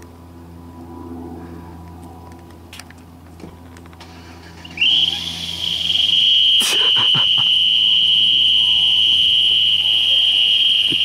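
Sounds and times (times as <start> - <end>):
shrill exhaust whistle: 4.4 - 11.0.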